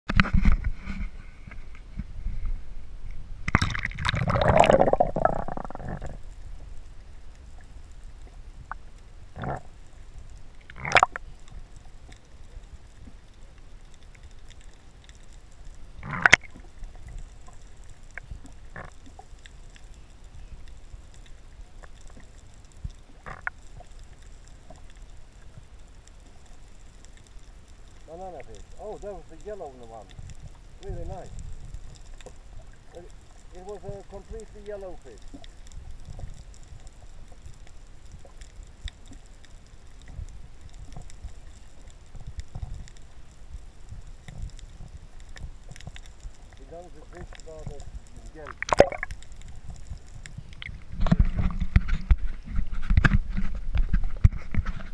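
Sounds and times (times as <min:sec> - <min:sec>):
underwater rumble: 0:00.1 - 0:54.9
light clicks and ticks: 0:06.0 - 0:54.9
water sloshing: 0:46.7 - 0:54.9.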